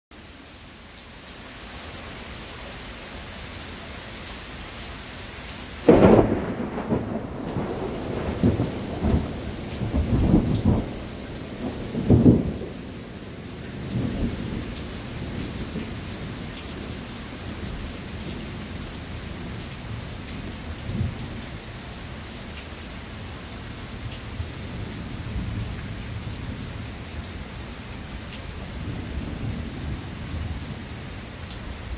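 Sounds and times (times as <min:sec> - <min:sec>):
steady rain falling: 0:00.1 - 0:31.9
thunder rumbling: 0:05.8 - 0:13.2.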